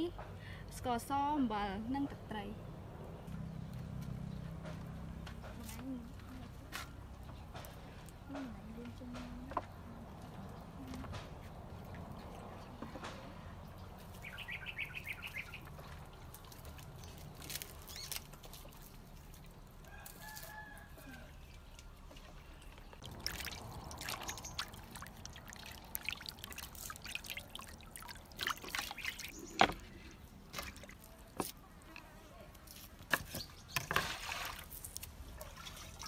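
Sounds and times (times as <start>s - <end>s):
bird calls: 14.2s - 15.8s, 28.3s - 30.2s
water sloshing in steel bowl: 15.1s - 20.7s, 21.6s - 36.0s.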